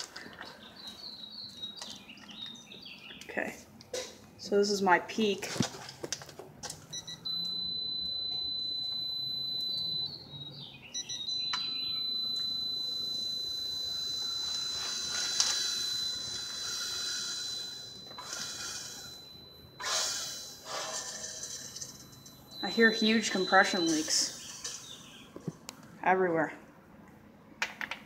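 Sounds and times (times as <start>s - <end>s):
high-pitched alarm tone: 6.9s - 24.4s.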